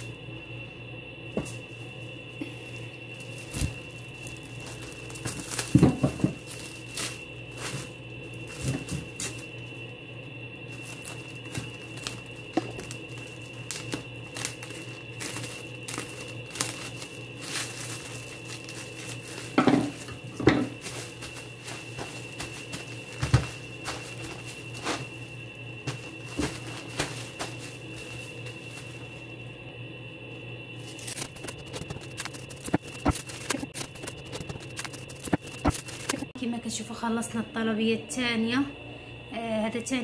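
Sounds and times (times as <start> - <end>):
cling film crinkling: 3.1 - 9.5, 10.7 - 25.2, 30.8 - 36.3.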